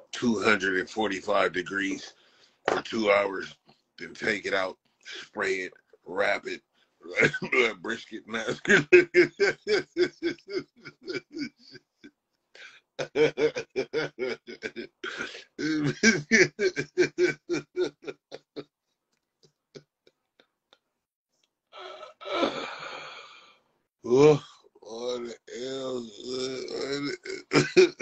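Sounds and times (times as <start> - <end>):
man laughing hard: 8.5 - 18.7, 26.7 - 28.0
breathy gasp: 21.8 - 23.6.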